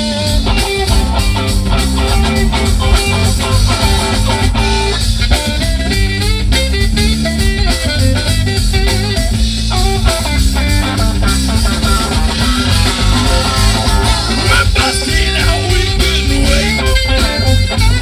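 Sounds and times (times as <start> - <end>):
drum kit: 0.0 - 18.0
electric guitar: 0.0 - 18.0
rock band playing: 0.0 - 18.0.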